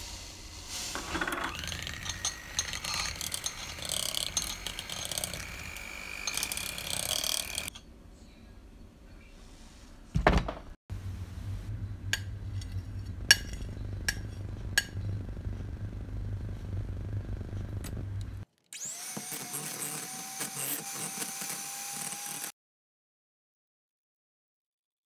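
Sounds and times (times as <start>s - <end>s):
electric hand mixer humming: 0.9s - 7.7s, 15.2s - 22.5s
thump: 10.2s - 10.6s.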